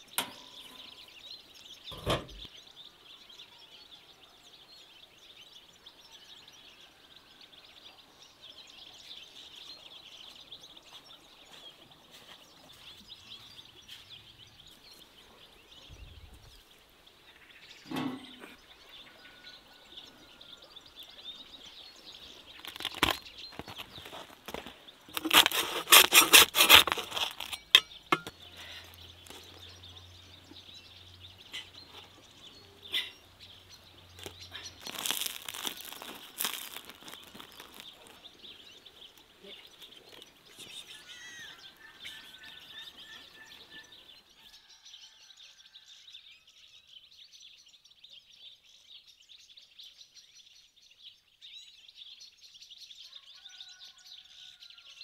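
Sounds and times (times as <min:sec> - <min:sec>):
faint bird chirps: 0:27.7 - 0:51.8.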